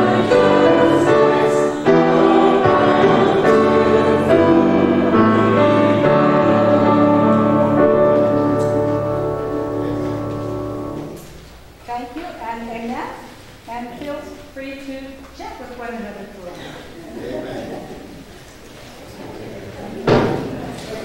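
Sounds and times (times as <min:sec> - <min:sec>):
congregation singing a hymn: 0:00.0 - 0:11.3
piano accompaniment: 0:00.0 - 0:11.7.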